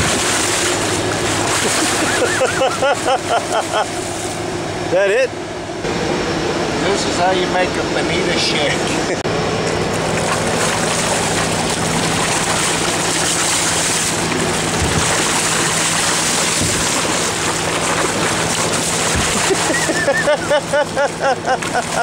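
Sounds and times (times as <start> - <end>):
water wash: 0.0 - 4.6, 9.7 - 22.0
boat engine humming: 0.0 - 22.0
dull low thumps: 14.3 - 19.5.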